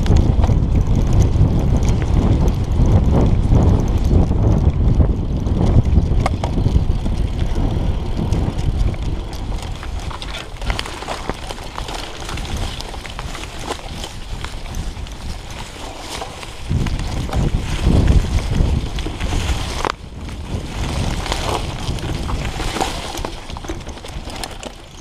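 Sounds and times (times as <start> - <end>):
bike clicks and rattles: 0.0 - 25.0
tyres on rough ground: 0.0 - 25.0
wind on microphone: 0.0 - 25.0.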